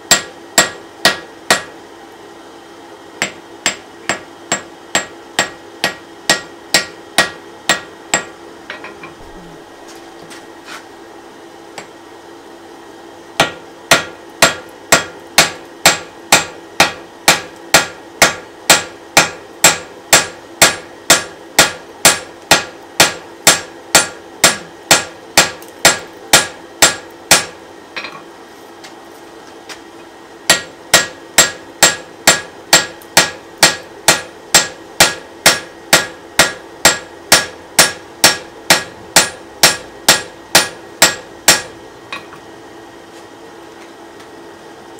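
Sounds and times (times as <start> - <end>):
hammer striking metal on anvil: 0.0 - 1.8, 3.2 - 9.1, 13.4 - 28.2, 30.5 - 42.4.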